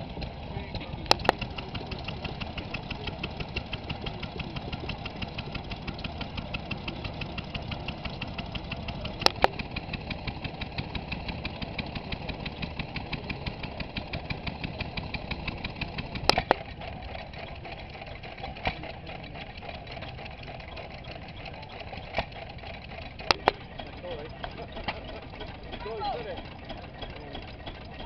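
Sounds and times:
stationary engines ticking: 0:00.0 - 0:28.0.

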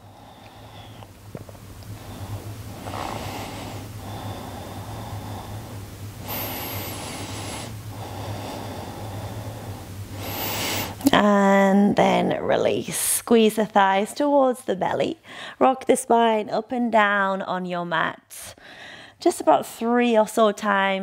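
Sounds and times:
person breathing deeply: 0:00.0 - 0:01.1, 0:01.9 - 0:11.1, 0:18.6 - 0:19.2
low steady hum: 0:00.0 - 0:21.0.

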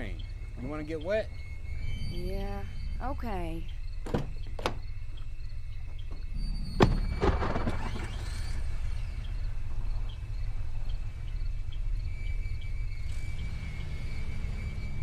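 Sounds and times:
car engine idling: 0:00.0 - 0:15.0
car door shutting: 0:04.0 - 0:08.5.

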